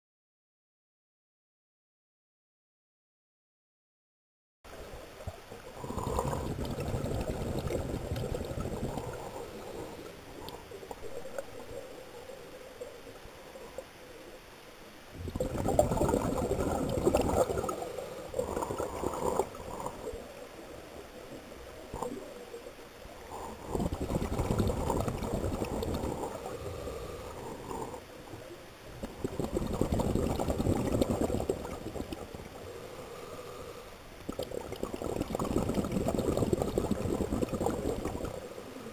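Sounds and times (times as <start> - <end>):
scuba regulator bubbling: 5.2 - 13.9, 15.2 - 38.9
underwater breathing: 5.8 - 12.7, 15.2 - 20.5, 23.2 - 28.3, 29.0 - 38.9.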